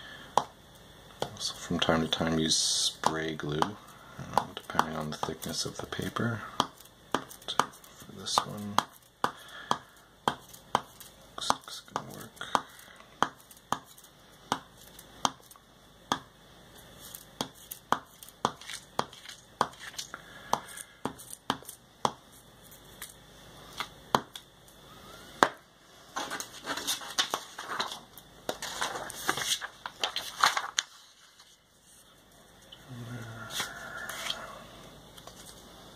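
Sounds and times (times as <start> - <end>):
glue stick tapping on paper: 3.0 - 5.4
paper crinkling and rustling: 26.2 - 32.1.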